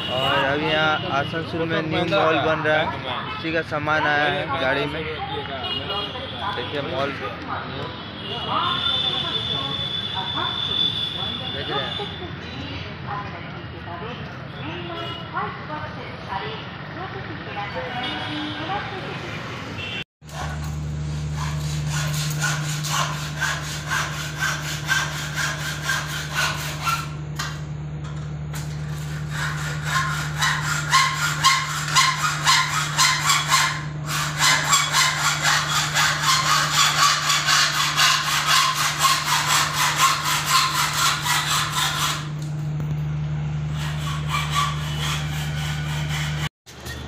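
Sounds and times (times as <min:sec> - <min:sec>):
hand saw strokes: 0:20.2 - 0:27.6, 0:28.5 - 0:42.5, 0:43.7 - 0:46.5.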